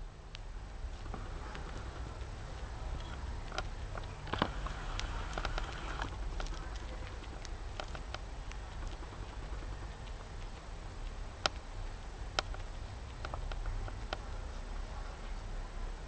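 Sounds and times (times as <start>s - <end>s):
low steady hum: 0.0s - 16.0s
small clicks: 3.0s - 10.6s.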